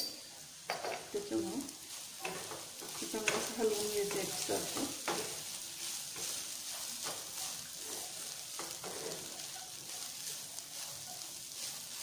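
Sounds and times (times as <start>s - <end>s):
beans sizzling in oil: 0.0s - 12.0s
spoon scraping through beans: 1.1s - 12.0s.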